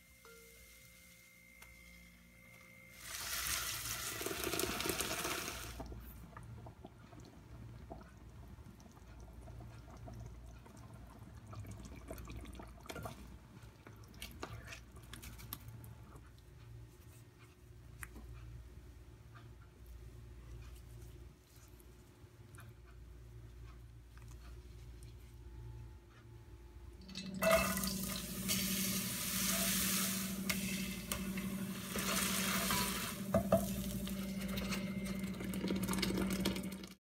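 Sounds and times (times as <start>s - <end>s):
liquid pouring into a pot: 3.0s - 6.0s, 27.0s - 37.0s.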